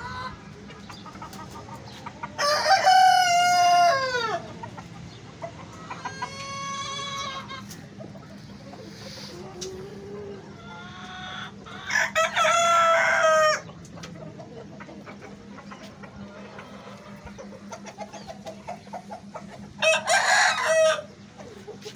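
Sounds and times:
hens clucking softly: 0.0s - 21.9s
rooster crowing: 2.4s - 4.4s, 11.9s - 13.7s, 19.8s - 21.1s.

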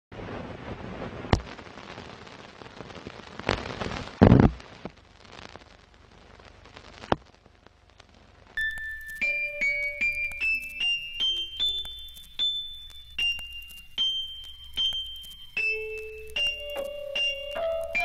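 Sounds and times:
film crackle hiss: 0.1s - 18.0s
sharp pops: 2.8s - 5.0s, 6.9s - 18.0s.

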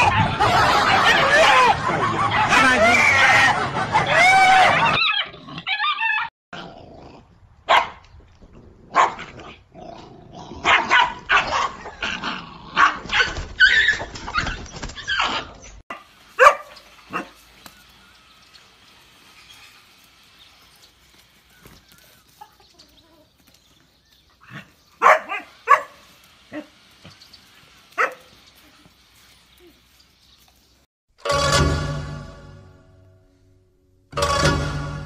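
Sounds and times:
dogs barking and growling: 0.0s - 17.4s, 24.4s - 26.8s, 27.9s - 28.8s
dog yelping: 4.0s - 6.3s, 12.8s - 15.6s.

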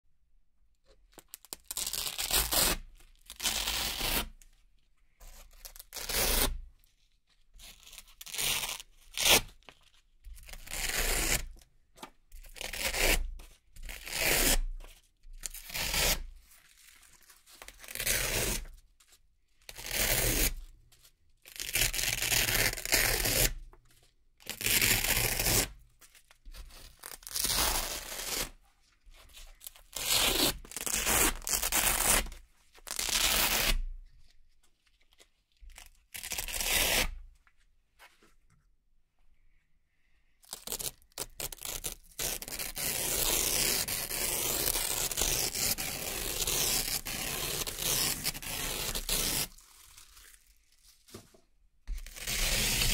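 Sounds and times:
velcro ripping: 1.5s - 4.3s, 21.5s - 23.5s, 24.4s - 25.7s, 27.0s - 28.5s, 29.9s - 33.9s, 35.8s - 37.2s, 40.4s - 50.6s, 52.0s - 52.9s.

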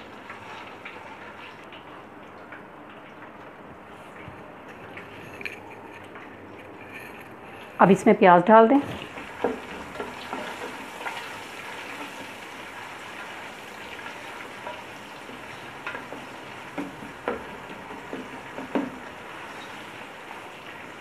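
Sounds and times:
onions sizzling in hot oil: 9.0s - 21.0s.

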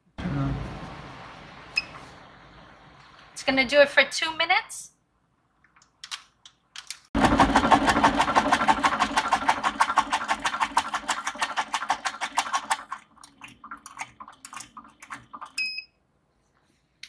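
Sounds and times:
homogenizer paddles pounding: 7.2s - 13.0s.

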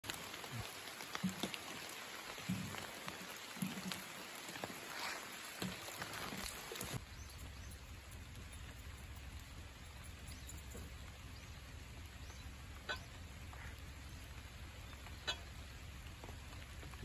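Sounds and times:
low steady rumble: 7.0s - 17.0s.

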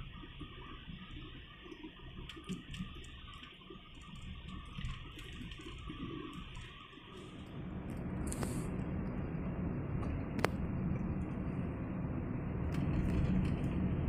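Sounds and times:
car cabin road and engine noise: 7.2s - 14.0s.

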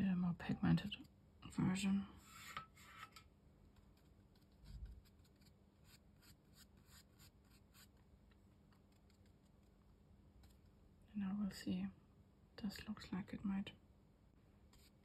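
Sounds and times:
brush scratching on paper: 2.2s - 3.1s, 3.8s - 8.0s, 14.7s - 15.0s.

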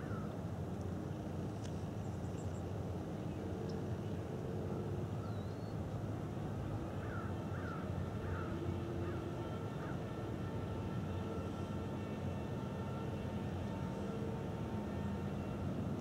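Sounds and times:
faint hum: 0.0s - 16.0s
birds calling: 7.0s - 9.2s.

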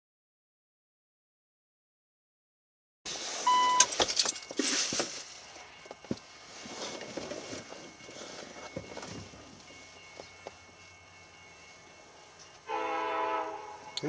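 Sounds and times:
short electronic beep: 3.4s - 3.9s.

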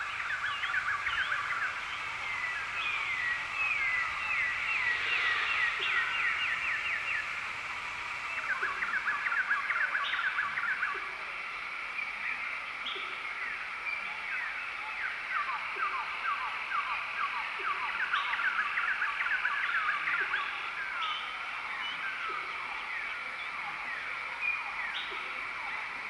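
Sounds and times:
many birds chirping: 0.0s - 11.2s
high-pitched drone: 0.6s - 10.2s.

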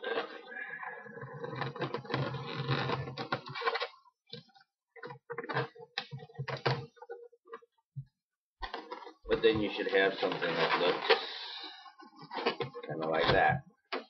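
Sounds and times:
balloons rubbing and squeaking: 0.0s - 4.0s, 8.6s - 13.5s.

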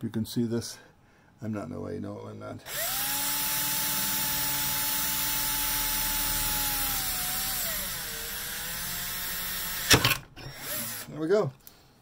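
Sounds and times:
cordless drill drilling brass: 2.7s - 11.2s.

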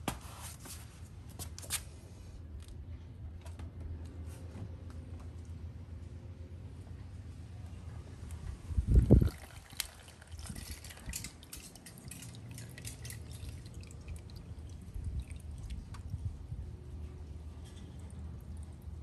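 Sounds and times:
oil dripping into plastic pan: 8.9s - 16.2s.

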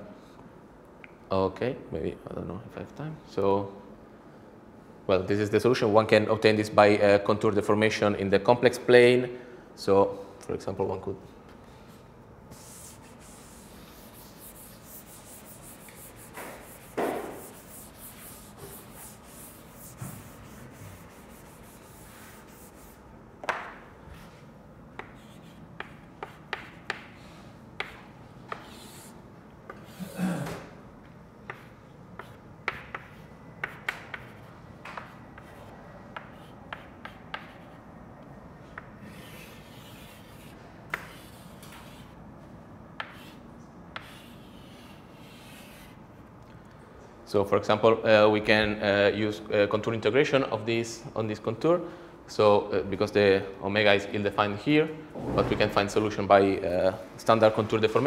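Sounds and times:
chalk tapping and scraping: 11.7s - 24.4s, 25.0s - 30.2s, 31.5s - 37.8s, 38.8s - 42.2s, 43.0s - 46.0s
eraser scrubbing blackboard: 12.5s - 23.0s, 25.0s - 29.2s, 39.0s - 42.2s, 44.0s - 46.0s.

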